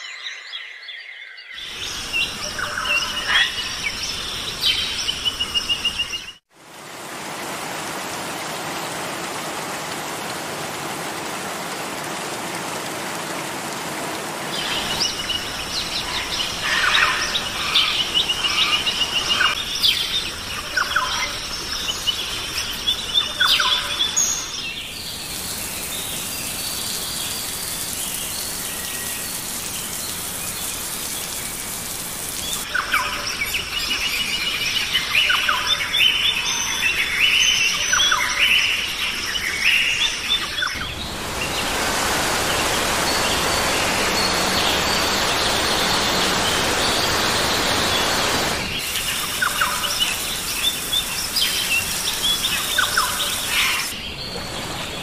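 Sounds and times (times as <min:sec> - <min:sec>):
birds chirping and trilling: 0:00.0 - 0:06.4, 0:13.8 - 0:55.0
steady hiss: 0:24.8 - 0:32.7, 0:40.8 - 0:55.0.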